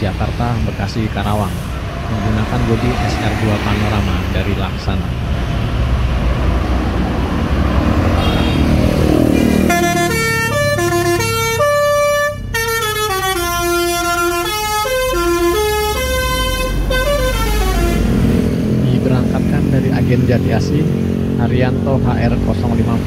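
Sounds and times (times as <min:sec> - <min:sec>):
diesel bus engine running: 0:00.0 - 0:23.0
bus horn playing a melody: 0:08.2 - 0:18.2.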